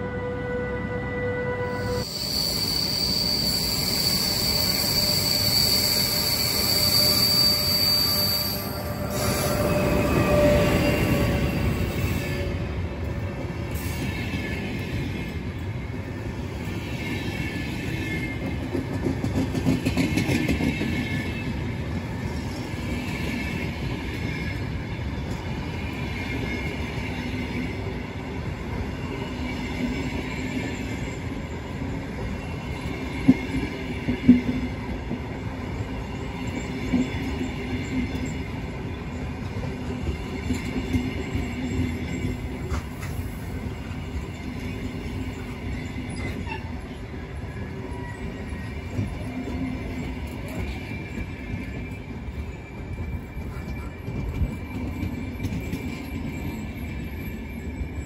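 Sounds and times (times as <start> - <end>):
wheels squealing: 2.0 - 11.8
train wheels rumbling on rails: 2.0 - 58.0.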